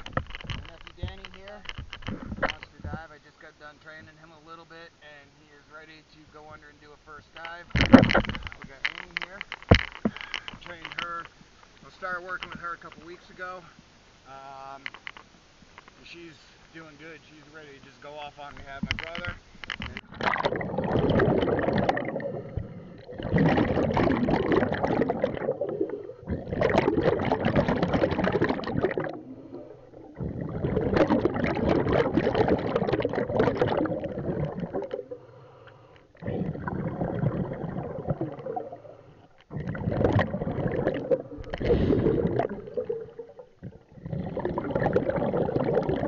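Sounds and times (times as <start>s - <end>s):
diver exhaling bubbles underwater: 20.0s - 35.4s, 36.2s - 46.0s.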